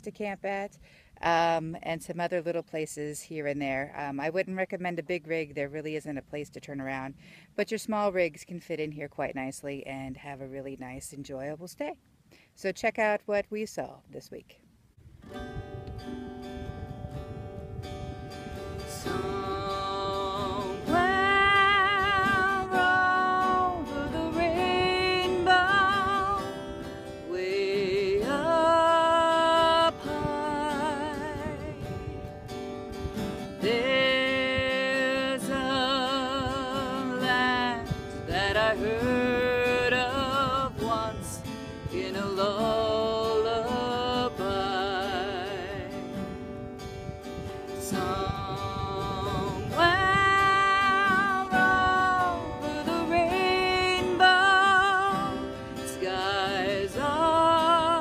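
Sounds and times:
acoustic guitar: 0:15.0 - 0:58.0
person singing with vibrato: 0:18.4 - 0:58.0.

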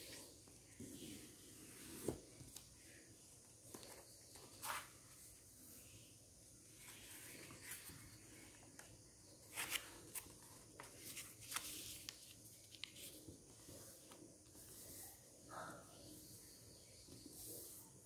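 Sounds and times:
paper rustling and crinkling: 0:09.4 - 0:14.2.

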